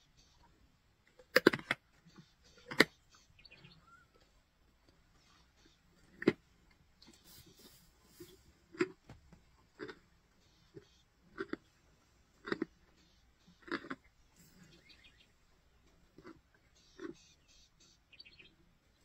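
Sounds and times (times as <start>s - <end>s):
lions crunching and tearing bone: 1.1s - 3.0s, 8.6s - 10.1s, 10.7s - 13.0s, 13.6s - 14.6s.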